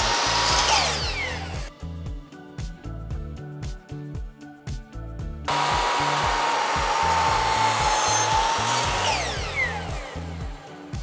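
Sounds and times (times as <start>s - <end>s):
miter saw whining: 0.0s - 1.7s, 5.5s - 11.0s
saw blade winding down: 0.0s - 1.7s, 5.5s - 11.0s
background music with steady beat: 0.0s - 11.0s.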